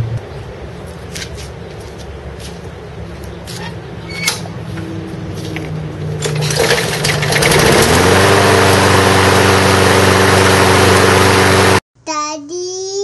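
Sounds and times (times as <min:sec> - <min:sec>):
lawnmower engine running: 0:04.5 - 0:11.8.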